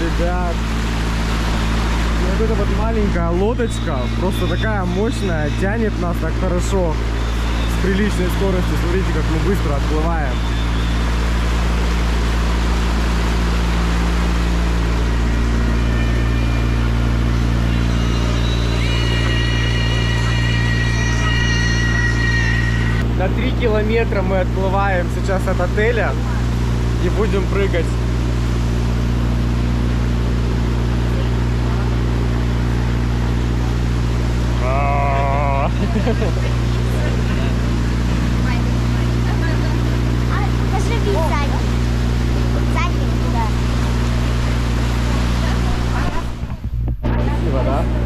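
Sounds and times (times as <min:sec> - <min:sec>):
rushing water: 0:00.0 - 0:20.9, 0:22.8 - 0:46.5
motorboat engine droning: 0:00.0 - 0:48.0
person calling out: 0:34.6 - 0:35.8.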